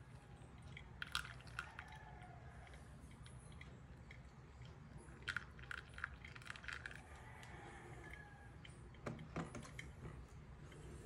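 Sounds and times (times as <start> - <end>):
coffee dripping: 0.0 - 10.8.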